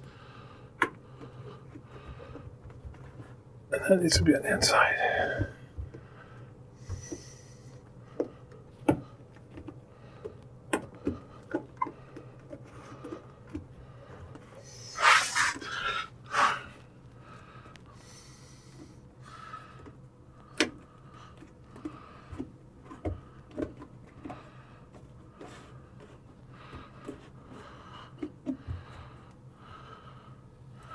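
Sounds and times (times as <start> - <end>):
faint steady hum: 0.0 - 30.9
rubber rubbing and scraping: 14.8 - 16.7.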